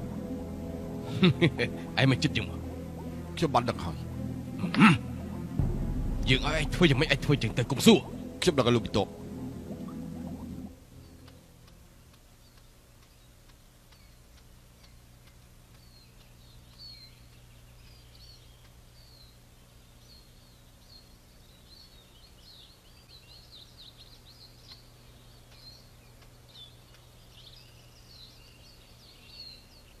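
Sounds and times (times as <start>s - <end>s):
steady low hum: 0.0s - 22.9s
small birds chirping: 7.3s - 30.0s.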